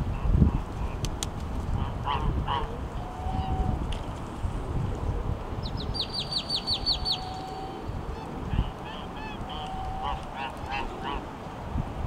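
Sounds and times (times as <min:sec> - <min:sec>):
small songbird singing: 0:05.6 - 0:07.8.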